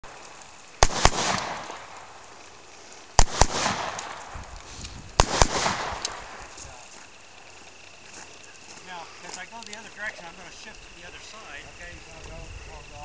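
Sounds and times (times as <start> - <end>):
rifle shots with echo: 0.8 - 2.1, 3.2 - 4.4, 5.2 - 6.4.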